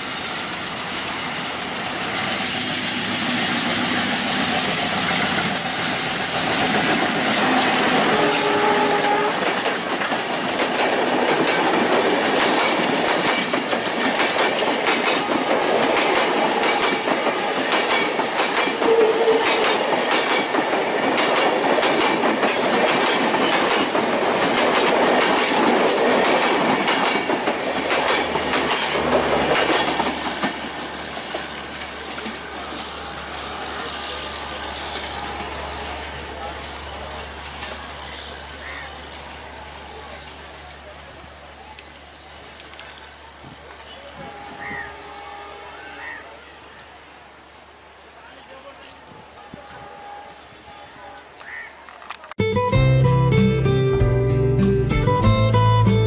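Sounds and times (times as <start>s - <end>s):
train wheels clickety-clack: 0.0s - 32.9s
diesel locomotive engine: 0.0s - 56.0s.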